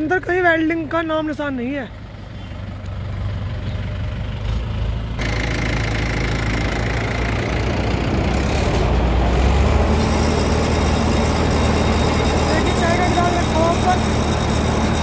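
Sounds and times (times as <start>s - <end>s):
tractor engine running: 0.0s - 15.0s
threshing drum spinning: 5.2s - 15.0s.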